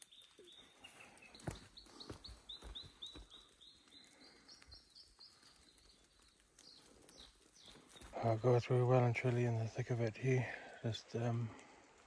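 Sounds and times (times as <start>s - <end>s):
small songbird singing: 0.0s - 8.7s.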